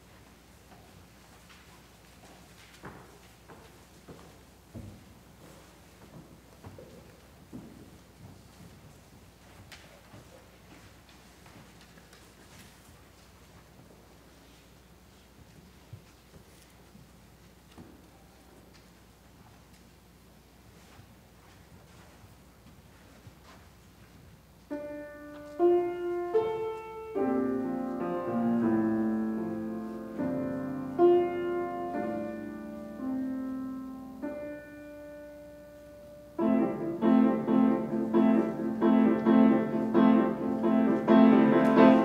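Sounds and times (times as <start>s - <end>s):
piano notes and chords: 24.7s - 42.0s.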